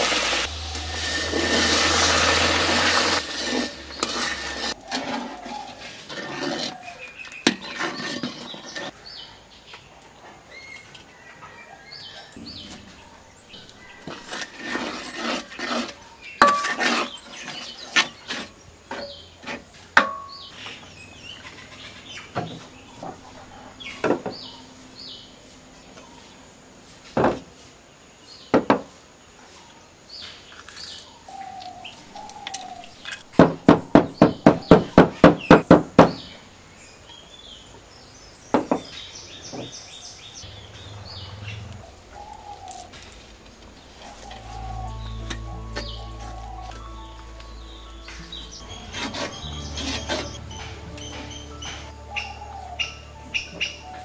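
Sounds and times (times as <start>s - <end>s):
wooden spatula scraping pan: 0.8s - 9.0s, 12.4s - 20.3s, 43.9s - 51.9s.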